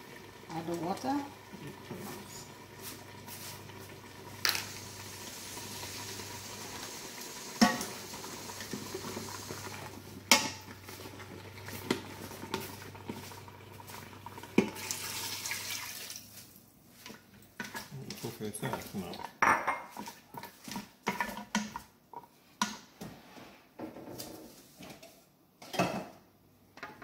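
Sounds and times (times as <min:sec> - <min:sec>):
water pouring into pot: 0:00.0 - 0:16.4
food sizzling: 0:00.0 - 0:16.5, 0:17.6 - 0:21.2
utensil scraping metal pot: 0:17.6 - 0:22.3.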